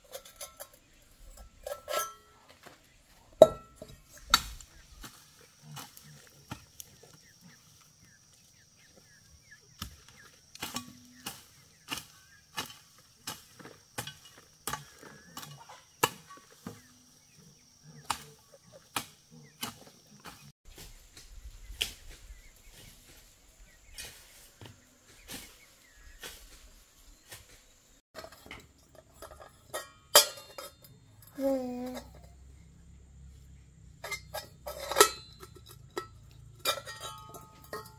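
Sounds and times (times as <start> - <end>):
hand tool knocking: 3.4 - 4.4.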